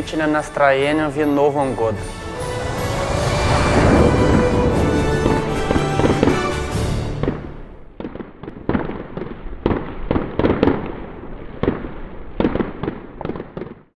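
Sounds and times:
fireworks bangs: 2.3s - 11.0s.

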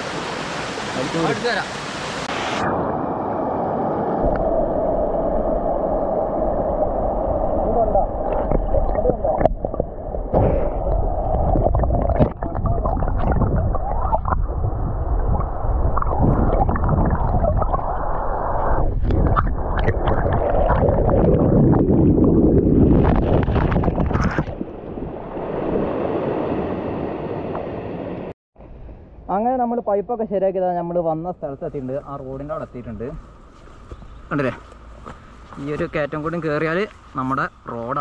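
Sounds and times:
stream water rushing underwater: 0.0s - 28.3s.

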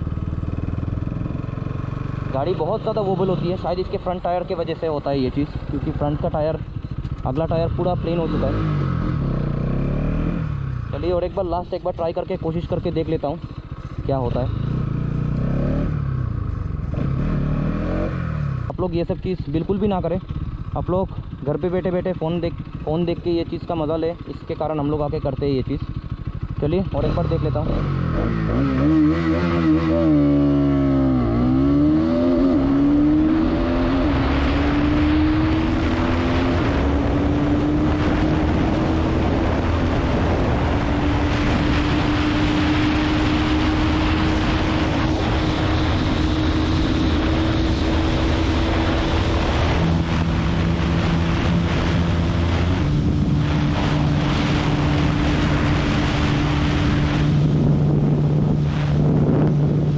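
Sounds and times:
motorcycle engine at full throttle: 0.0s - 59.9s
wind noise on microphone: 28.0s - 59.9s.

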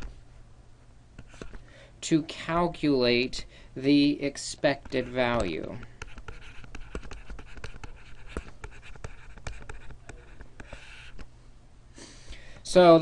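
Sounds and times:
stylus tapping and scratching: 1.2s - 1.6s, 4.6s - 11.3s.

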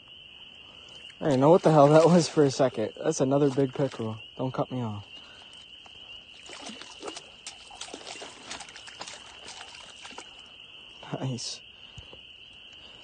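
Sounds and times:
water trickling: 0.7s - 11.1s
fish splashing at water surface: 6.3s - 10.5s.

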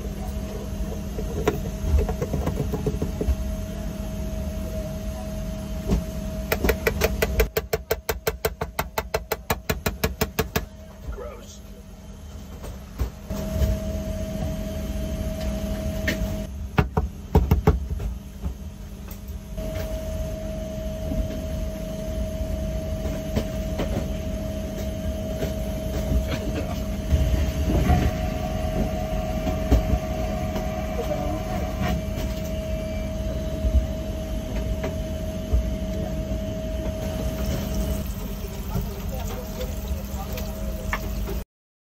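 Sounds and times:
aircraft cabin rumble: 0.0s - 7.3s
constant hum: 0.0s - 41.4s.

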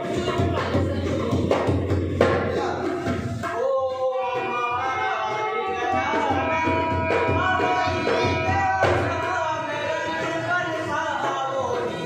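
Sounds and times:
hand drum rhythm: 0.0s - 12.0s
man singing: 2.4s - 12.0s.

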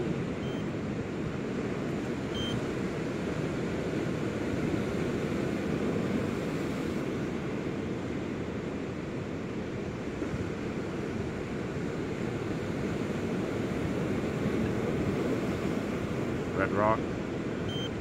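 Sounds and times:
surf on beach: 0.0s - 18.0s
wind: 0.0s - 18.0s
short high electronic beeps: 0.4s - 0.6s, 17.7s - 18.0s.

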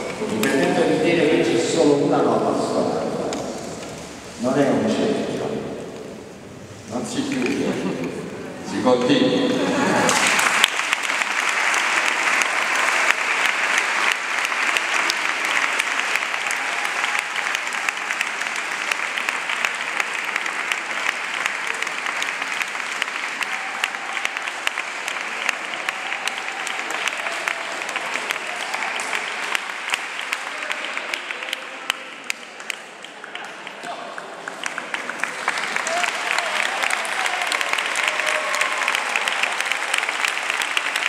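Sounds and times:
crowd applauding: 0.0s - 0.9s, 9.4s - 41.0s.

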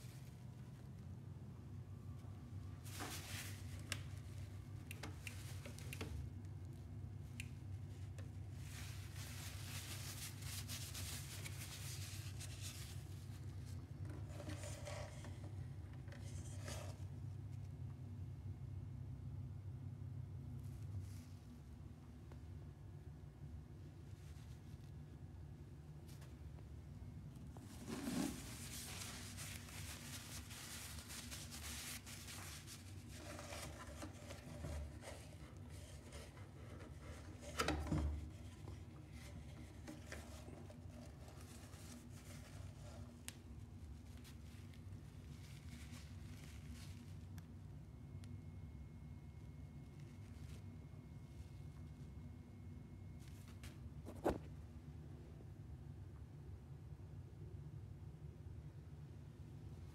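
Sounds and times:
steady low hum: 0.0s - 59.9s
hands rubbing paper tissue: 8.5s - 13.7s, 27.6s - 37.5s, 38.3s - 47.2s.

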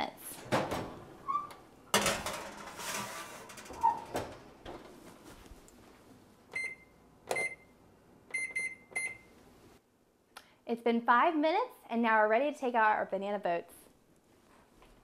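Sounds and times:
oven door shutting: 0.3s - 5.0s
baking sheet clattering: 1.9s - 5.1s
keypad beeps: 6.6s - 7.6s, 8.3s - 9.2s.

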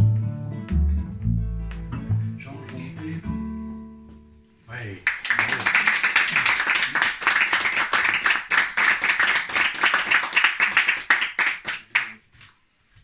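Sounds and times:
audience applauding: 5.0s - 12.2s.

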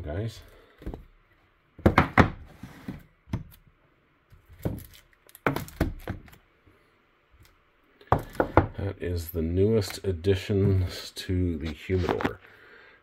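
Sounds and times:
boxes knocking on wooden table: 1.8s - 3.0s, 8.1s - 8.8s.

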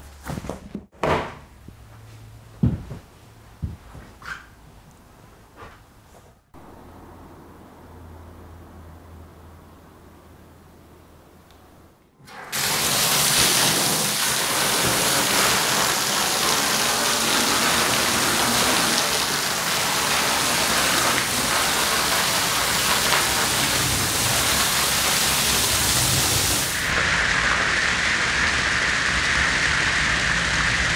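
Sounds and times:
hose water spraying on rug: 12.5s - 30.9s.

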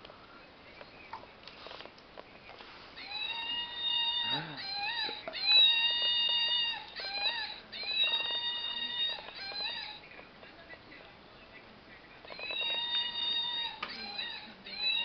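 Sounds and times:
dog whining: 3.0s - 10.0s, 12.3s - 15.0s.

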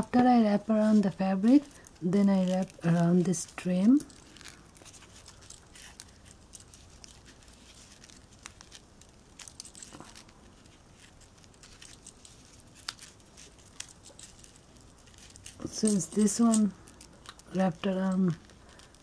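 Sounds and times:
soft rustling and crinkling: 0.0s - 19.0s.

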